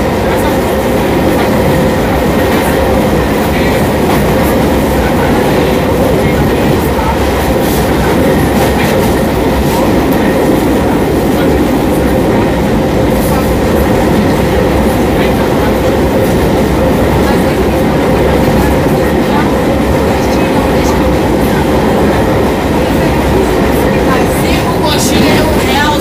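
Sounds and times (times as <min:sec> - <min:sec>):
train wheels clattering on rails: 0:00.0 - 0:26.0.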